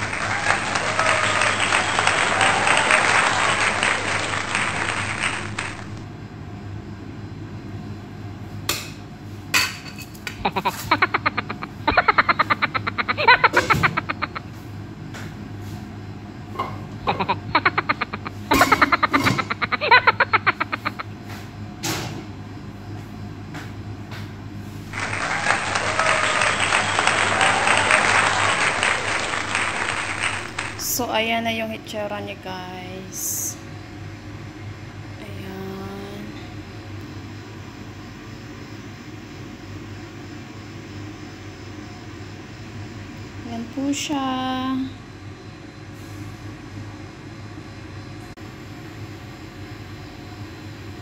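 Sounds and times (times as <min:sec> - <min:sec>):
applause: 0:00.0 - 0:06.0, 0:24.9 - 0:31.0
low steady hum: 0:00.0 - 0:51.0.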